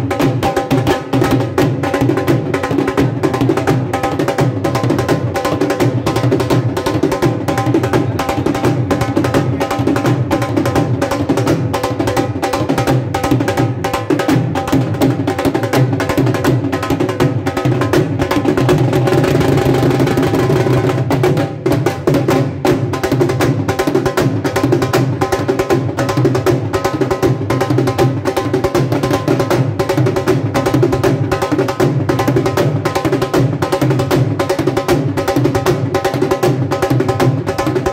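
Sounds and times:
dhol drum beat: 0.0s - 37.9s.

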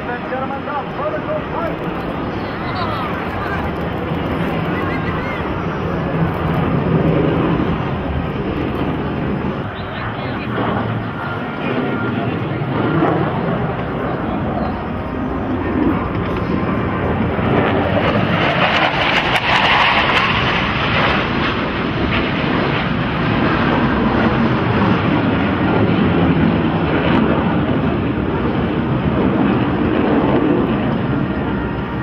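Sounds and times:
jet flying past overhead: 0.0s - 32.0s.

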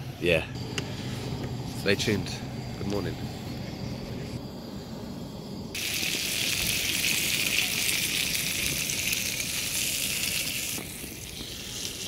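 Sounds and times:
food sizzling on a griddle: 5.8s - 12.0s.

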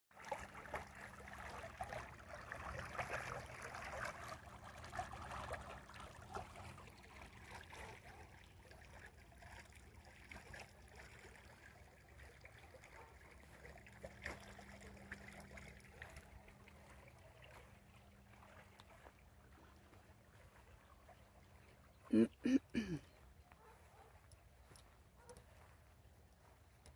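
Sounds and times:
faint trickling water: 0.2s - 26.9s.

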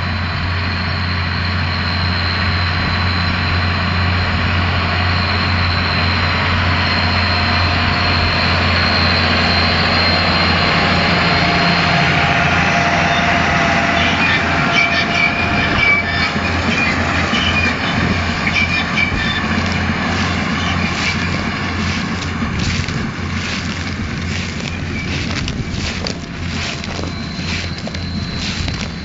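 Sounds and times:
tractor engine hum and whine: 0.0s - 29.0s
baler squeaks and clicking rattles: 11.6s - 29.0s.

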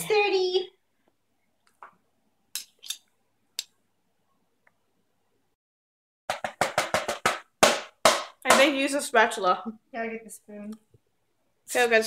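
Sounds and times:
loud sharp knocks: 6.3s - 8.7s.

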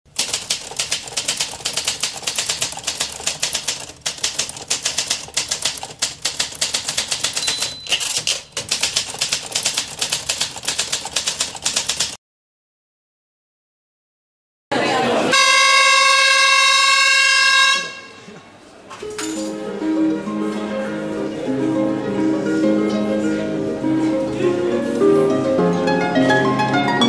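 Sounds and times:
typewriter keystroke clacks: 0.1s - 12.2s.

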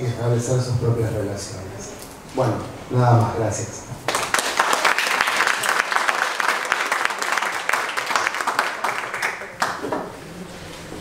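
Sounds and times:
audience applauding: 4.1s - 9.9s.

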